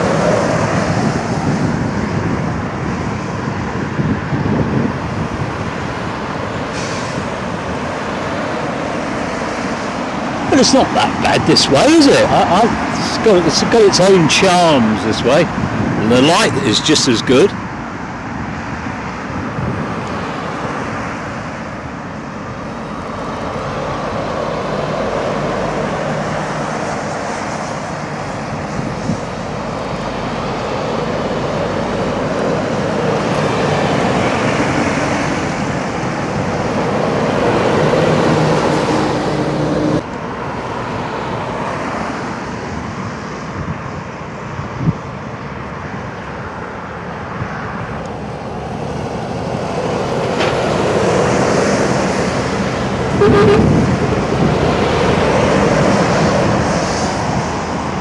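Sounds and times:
lorry passing close: 0:00.0 - 0:42.5
diesel engines of traffic: 0:00.0 - 0:58.0.

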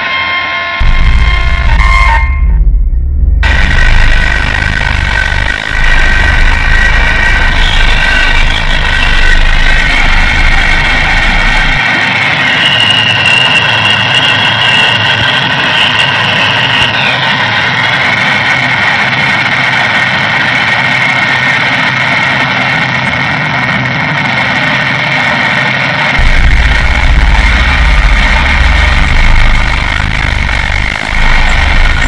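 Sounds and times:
shrill bending tone: 0:00.0 - 0:17.8, 0:26.2 - 0:32.0
harsh electronic noise wall: 0:00.0 - 0:32.0
deep bass drone: 0:00.8 - 0:32.0.

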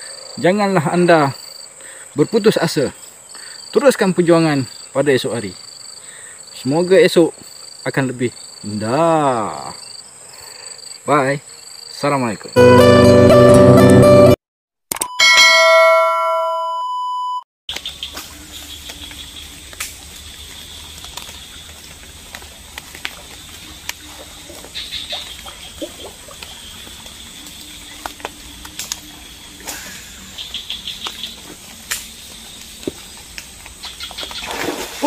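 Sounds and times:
bell-like notification chime: 0:12.6 - 0:14.3, 0:15.0 - 0:17.4.

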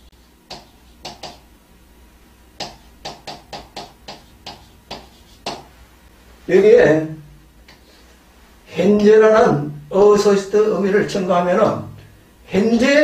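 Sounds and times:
low mains hum: 0:00.0 - 0:13.0
pen tapping and scratching on board: 0:00.5 - 0:01.4, 0:02.6 - 0:05.7.

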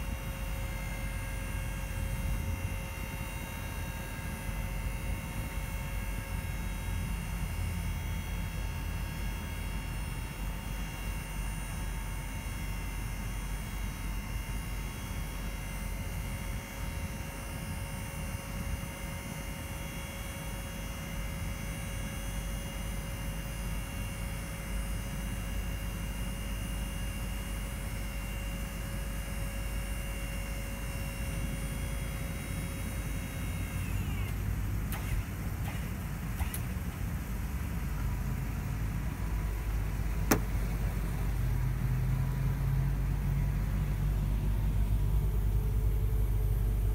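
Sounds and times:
truck hydraulic hoist humming: 0:33.4 - 0:37.1, 0:40.1 - 0:40.9.

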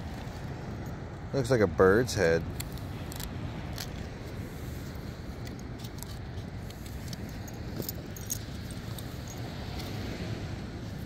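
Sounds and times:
dog collar jingling: 0:07.0 - 0:09.6.

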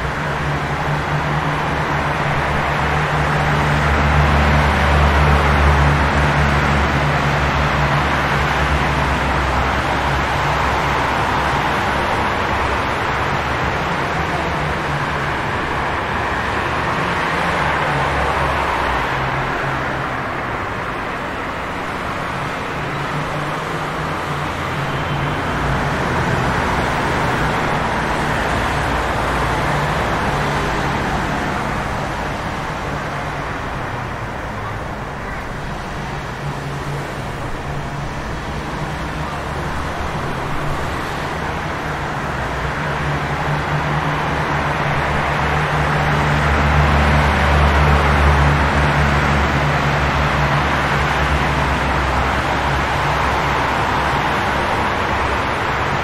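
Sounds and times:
car traffic engine hum: 0:00.0 - 0:56.0.

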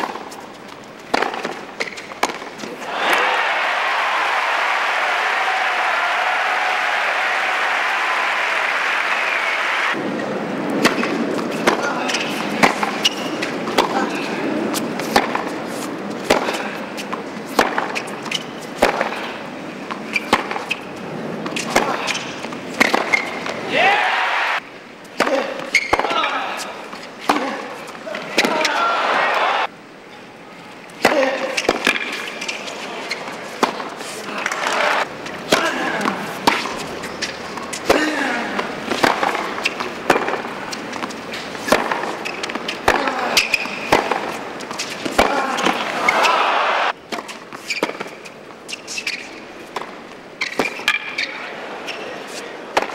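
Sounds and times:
background noise: 0:00.0 - 0:52.9
tennis ball struck by rackets: 0:01.1 - 0:02.7, 0:10.7 - 0:15.6, 0:16.2 - 0:19.3, 0:19.9 - 0:20.8, 0:21.4 - 0:23.6, 0:31.0 - 0:32.3, 0:33.6 - 0:46.2
ball bouncing on hard court: 0:41.7 - 0:45.9.

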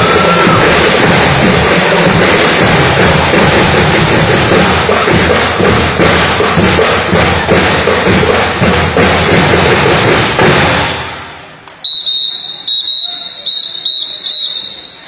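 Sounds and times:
drum and lyre band playing: 0:00.0 - 0:10.7
drums beating a march beat: 0:00.0 - 0:15.0.

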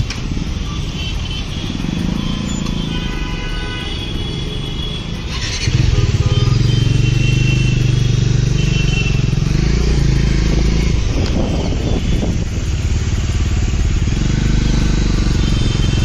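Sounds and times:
motorcycle engine running: 0:00.0 - 0:03.2, 0:03.8 - 0:16.0.

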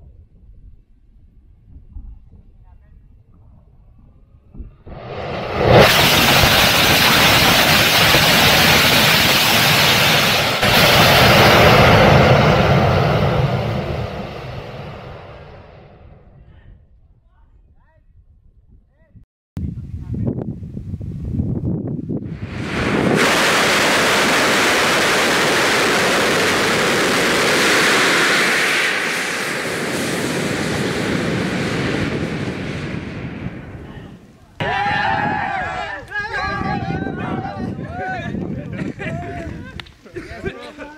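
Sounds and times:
rocket motor roaring: 0:04.9 - 0:16.0, 0:22.3 - 0:33.8.

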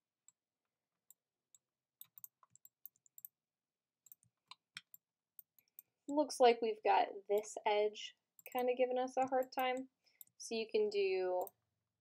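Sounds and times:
computer mouse and keyboard clicking: 0:02.0 - 0:03.4, 0:08.4 - 0:10.4.

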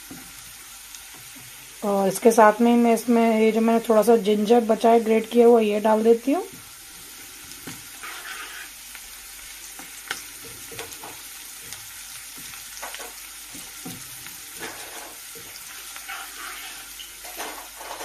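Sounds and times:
garlic sizzling in hot oil: 0:00.0 - 0:18.0
spatula scraping pan: 0:07.2 - 0:09.0, 0:09.8 - 0:18.0.

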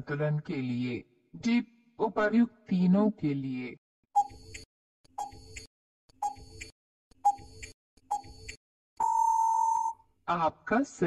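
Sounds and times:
timer ticks and tocks: 0:04.2 - 0:09.9.

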